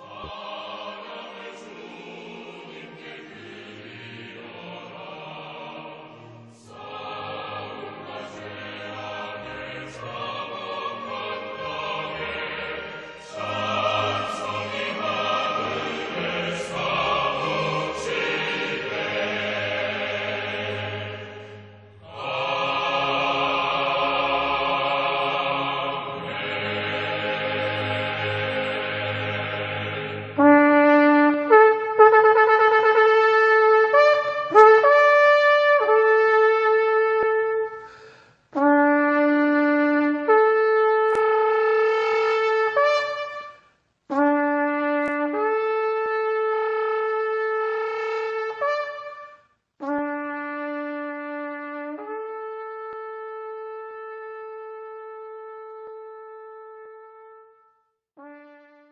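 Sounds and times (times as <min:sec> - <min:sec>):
horn blasts: 0:09.7 - 0:19.0, 0:30.0 - 0:58.9.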